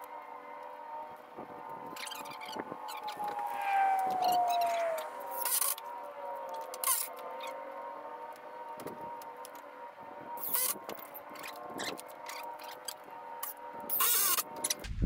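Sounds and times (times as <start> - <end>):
steady whine: 0.0 - 9.5.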